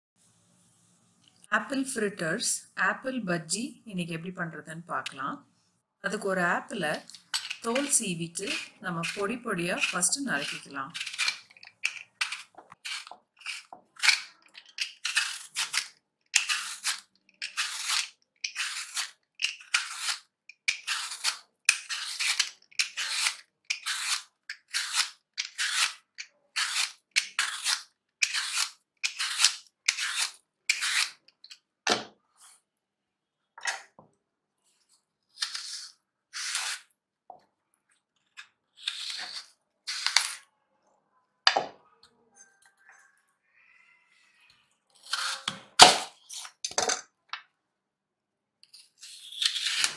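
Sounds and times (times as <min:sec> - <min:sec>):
peeler scraping apple skin: 0:07.1 - 0:31.6, 0:35.3 - 0:36.9, 0:38.3 - 0:40.4, 0:45.0 - 0:46.6, 0:48.6 - 0:49.9.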